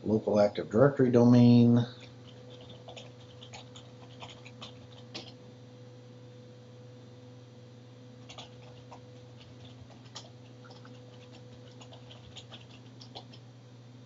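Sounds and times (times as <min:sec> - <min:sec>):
low steady hum: 0:00.0 - 0:14.0
keyboard keystrokes clicking: 0:02.2 - 0:05.4, 0:08.2 - 0:13.4.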